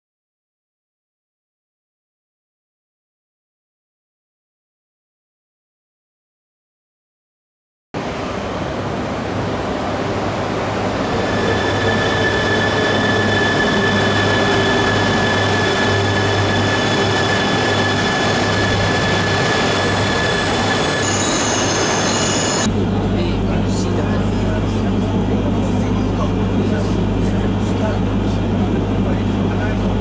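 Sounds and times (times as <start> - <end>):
train running noise: 8.0 - 30.0
high-pitched wheel and brake squeal: 10.8 - 22.7.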